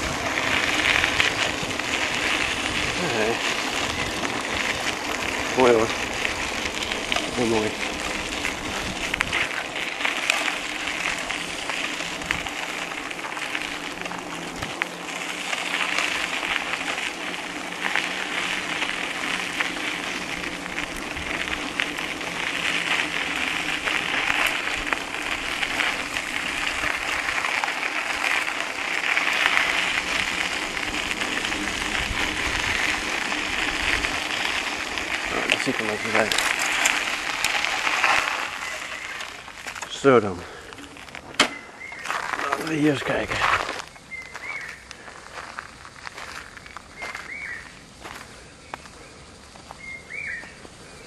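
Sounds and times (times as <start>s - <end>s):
bike clicks and rattles: 0.0s - 49.8s
bicycle tyres crunching on gravel: 0.0s - 51.0s.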